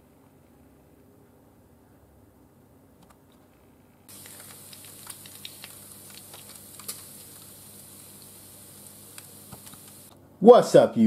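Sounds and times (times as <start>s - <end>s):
bacon sizzling and popping: 4.1s - 10.1s.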